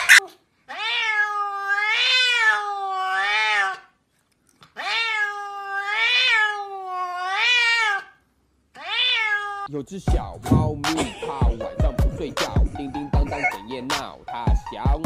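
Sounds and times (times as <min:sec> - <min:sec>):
cat meowing: 0:00.0 - 0:03.9, 0:04.8 - 0:08.2, 0:08.8 - 0:09.7, 0:13.2 - 0:13.6.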